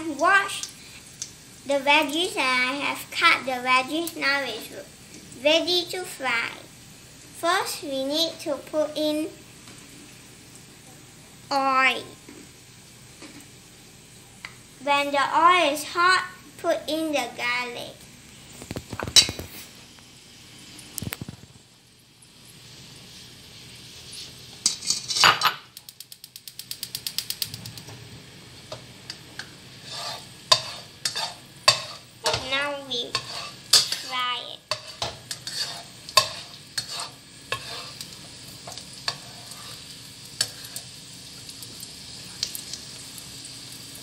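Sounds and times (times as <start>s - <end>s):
garlic sizzling in hot oil: 0.0s - 44.0s
plastic spatula scraping a pan: 29.8s - 32.0s, 33.0s - 34.1s, 34.7s - 38.0s.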